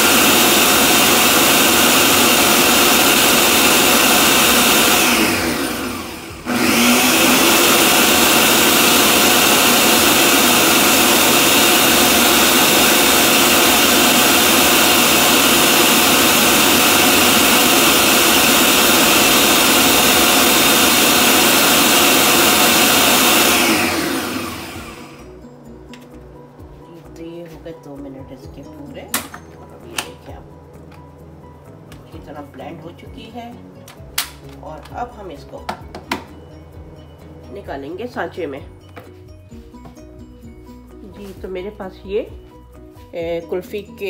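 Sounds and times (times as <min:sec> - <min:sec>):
electric blender running: 0:00.0 - 0:26.1.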